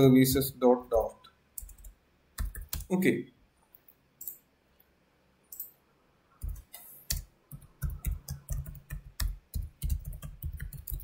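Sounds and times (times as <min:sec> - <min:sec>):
typing on computer keyboard: 0:01.6 - 0:02.9, 0:06.4 - 0:11.0.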